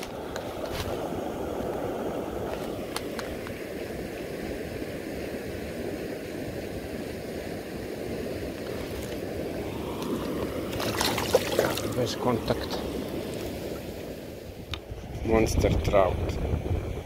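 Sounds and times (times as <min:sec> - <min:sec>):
shallow river flowing: 0:00.0 - 0:15.1.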